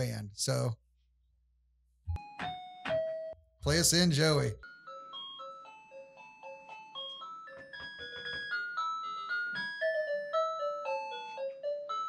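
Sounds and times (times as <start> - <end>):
electronic keyboard melody: 2.1 - 3.8, 4.6 - 12.0.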